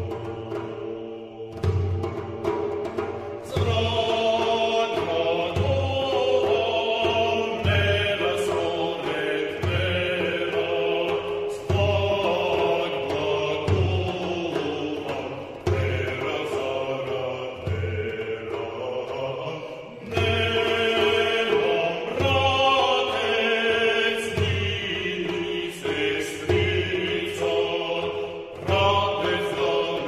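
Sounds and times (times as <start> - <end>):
chorus singing slow song: 0.0 - 30.0
low beats: 0.0 - 30.0.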